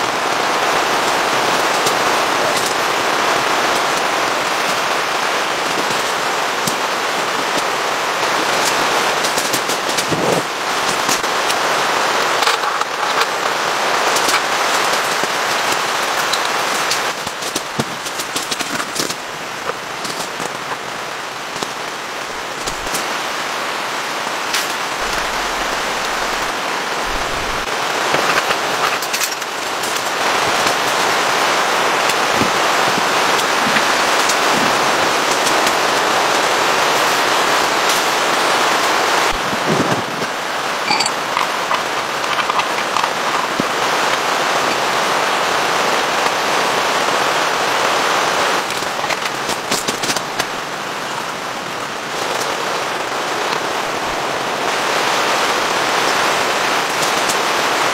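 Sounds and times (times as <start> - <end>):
heavy rain on tent canopy: 0.0 - 57.9
camping gear clicking and knocking: 22.6 - 23.0, 24.5 - 30.0, 40.8 - 44.3.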